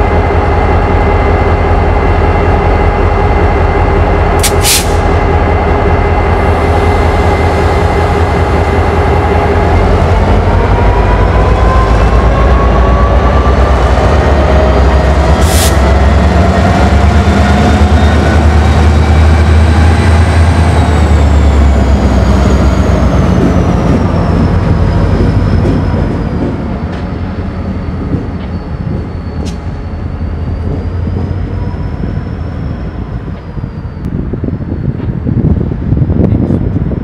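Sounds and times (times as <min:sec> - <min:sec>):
diesel locomotive engine drone: 0:00.0 - 0:37.0
sharp click: 0:04.4 - 0:04.8.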